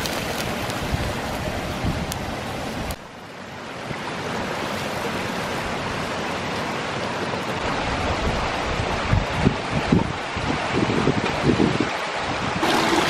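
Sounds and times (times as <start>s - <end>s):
stream rushing over rocks: 0.0s - 13.0s.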